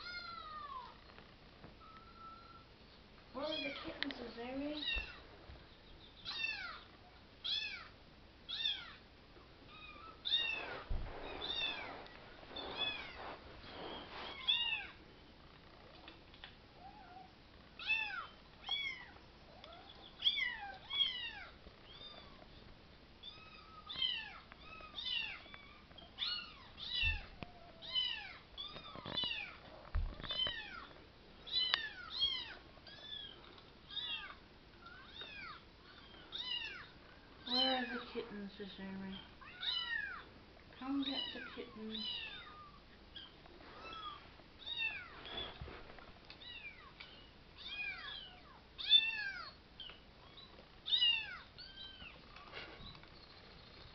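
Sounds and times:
soft thumps: 10.7s - 14.1s.

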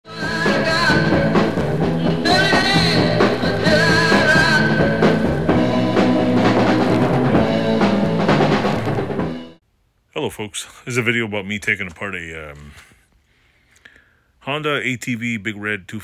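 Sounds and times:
wavering vocal or lead line: 0.1s - 6.6s
rock music with drums: 0.1s - 9.6s.

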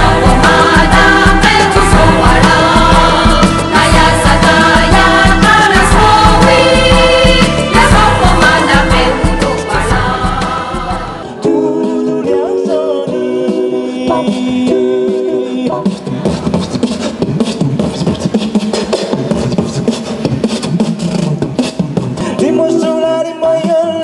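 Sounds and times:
long held sung notes: 11.2s - 16.0s
beatbox vocal percussion: 11.8s - 24.0s.

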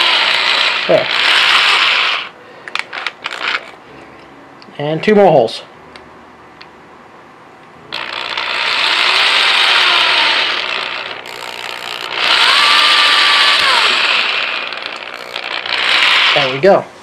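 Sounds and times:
cordless drill boring plastic: 0.0s - 3.7s, 7.9s - 16.6s.

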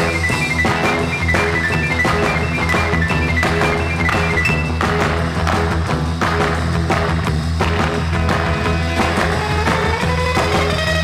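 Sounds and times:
repeating high melody: 0.0s - 5.2s
background music with drums: 0.0s - 11.0s.

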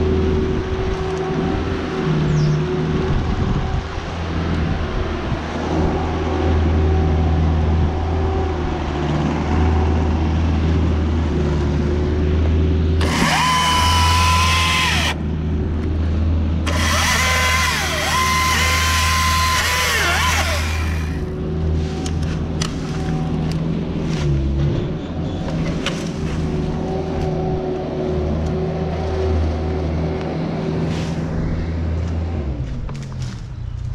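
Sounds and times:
low engine drone: 0.0s - 33.8s
battery chainsaw whining: 13.0s - 15.2s, 16.7s - 21.3s.

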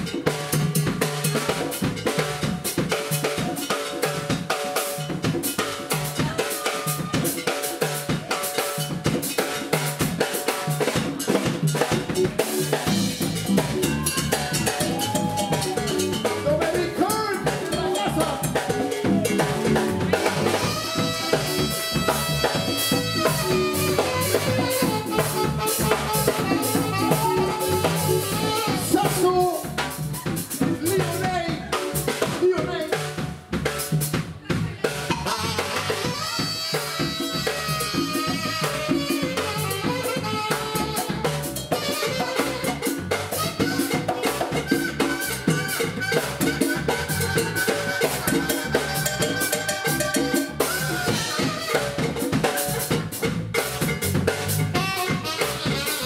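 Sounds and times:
drum kit and hand drums: 0.0s - 56.0s
saxophone melody: 10.9s - 30.9s, 35.1s - 56.0s.

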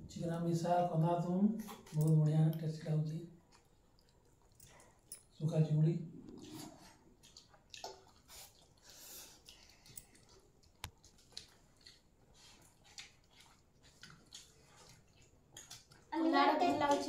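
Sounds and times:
hands mixing rice in bowls: 6.4s - 17.0s.

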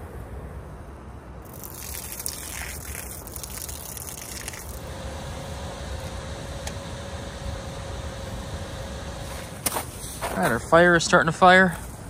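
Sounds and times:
pressure cooker venting steam: 4.6s - 9.5s.

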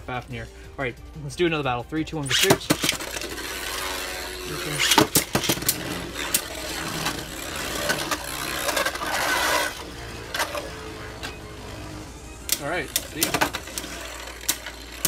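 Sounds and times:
plastic tops clacking: 2.3s - 4.1s, 4.7s - 9.7s, 12.5s - 15.0s
spinning tops whirring: 2.3s - 15.0s.

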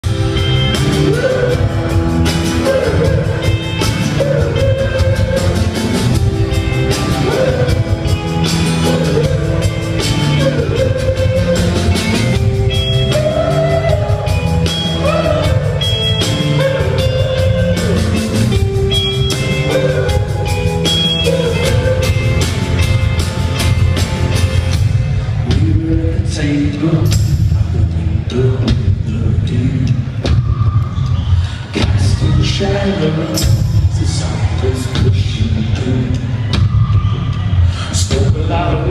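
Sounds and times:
drums: 0.0s - 38.9s
guitars: 0.0s - 38.9s
live rock band: 0.0s - 38.9s
person singing: 0.2s - 23.1s.

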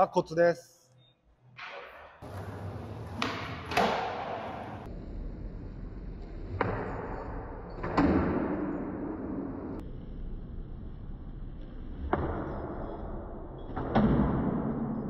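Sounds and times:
skateboard rolling on hard ground: 2.2s - 5.0s.

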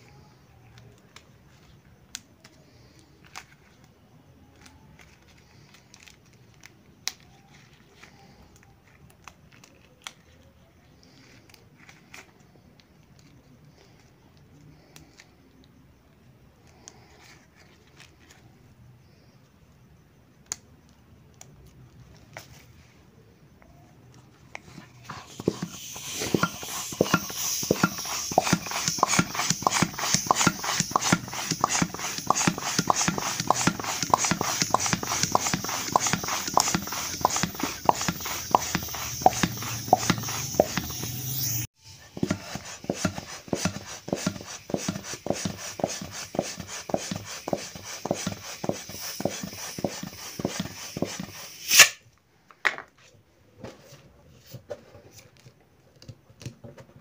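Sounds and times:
squeaky hissing hand pump strokes: 24.7s - 52.0s
balloon popping snap: 25.2s - 41.5s, 46.4s - 52.0s.

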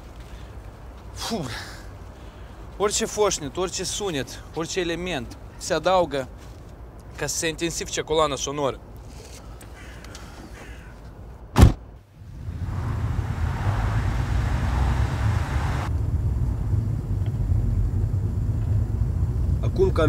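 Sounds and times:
car engine and road rumble: 11.5s - 20.0s
car boot lid slamming: 11.6s - 11.8s
rushing road noise: 12.1s - 20.0s.

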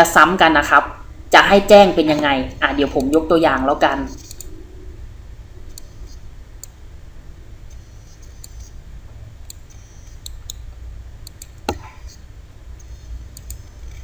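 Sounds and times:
low background hum: 0.0s - 14.0s
computer mouse clicking: 4.1s - 4.6s, 5.7s - 6.8s, 7.7s - 8.8s, 9.4s - 12.2s, 12.8s - 14.0s.

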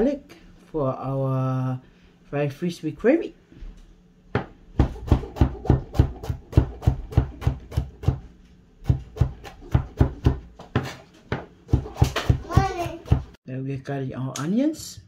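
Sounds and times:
knife chopping on plastic board: 4.4s - 13.4s.

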